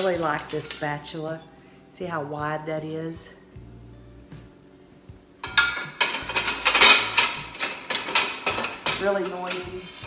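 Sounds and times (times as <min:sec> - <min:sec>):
metal utensils clattering: 0:00.0 - 0:01.1, 0:05.4 - 0:10.0.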